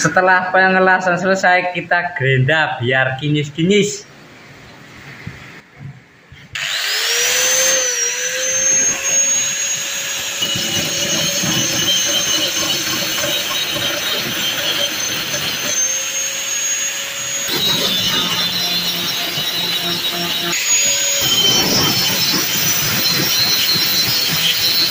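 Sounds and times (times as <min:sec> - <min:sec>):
angle grinder motor whine: 0:06.6 - 0:24.9
grinding disc rasping on steel: 0:06.6 - 0:24.9.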